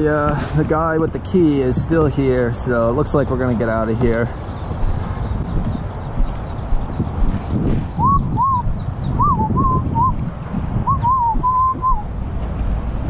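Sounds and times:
wind buffeting microphone: 0.0 - 13.0
person whistling a tune: 8.0 - 10.1, 10.9 - 12.0.

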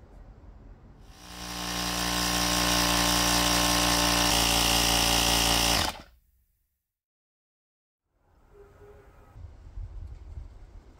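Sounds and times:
electric tyre inflator running: 1.1 - 6.1.

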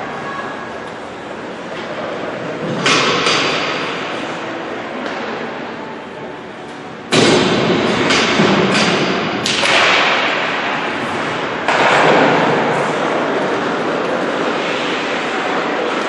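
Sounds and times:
sharp knocks echoing: 7.1 - 10.8.

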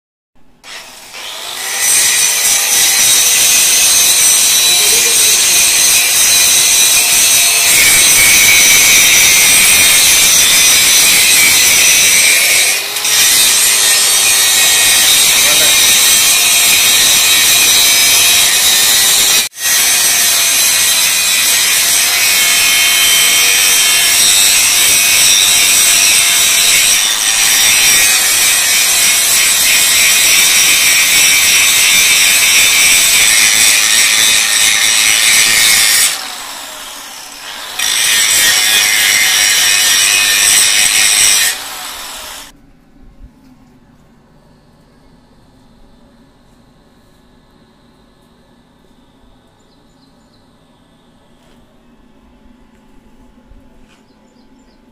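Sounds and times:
angle grinder grinding steel: 0.6 - 42.6.

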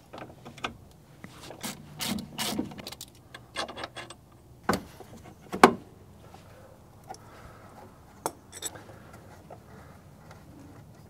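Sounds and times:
wrench and brake caliper clanking: 8.2 - 8.8.

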